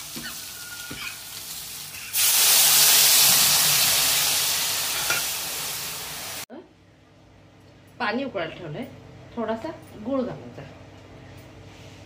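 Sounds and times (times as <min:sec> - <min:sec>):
water hissing in hot oil: 0:00.0 - 0:06.5.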